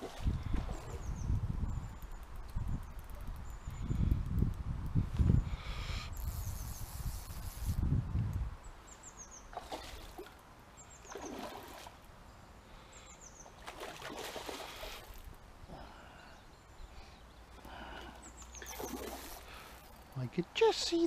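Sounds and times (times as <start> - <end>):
wind rumble on microphone: 0.0 - 8.8.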